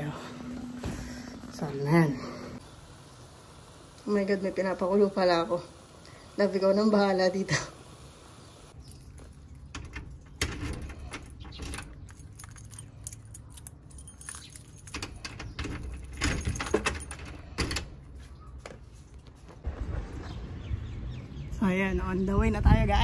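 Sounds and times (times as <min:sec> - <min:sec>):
keys jangling: 0:09.8 - 0:17.9.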